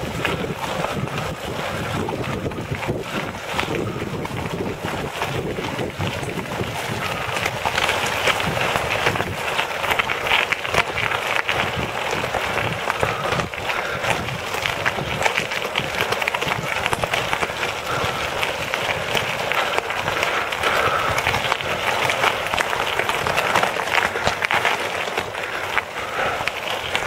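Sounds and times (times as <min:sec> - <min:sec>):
tyres crunching on gravel: 0:00.0 - 0:27.0.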